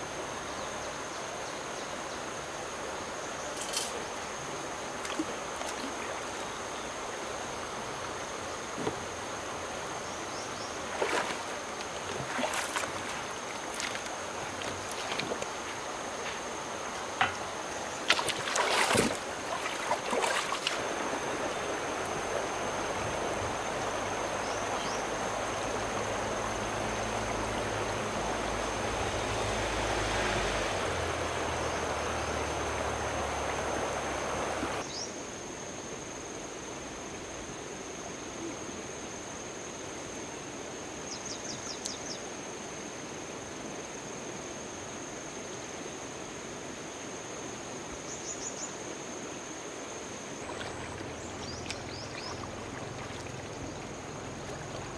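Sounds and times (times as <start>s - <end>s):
running water: 1.2s - 34.8s, 46.4s - 54.9s.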